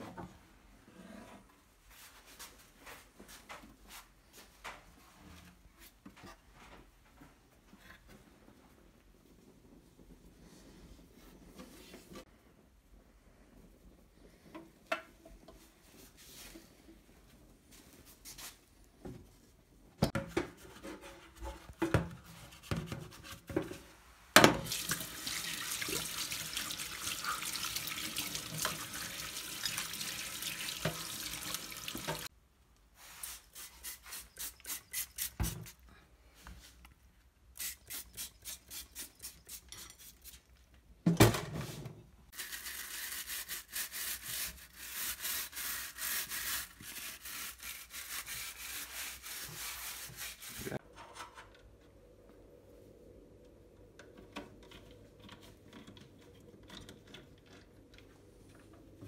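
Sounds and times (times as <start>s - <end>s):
tap water running into sink: 24.6s - 32.3s
brush scrubbing: 33.0s - 35.8s, 37.6s - 40.6s, 42.4s - 50.8s.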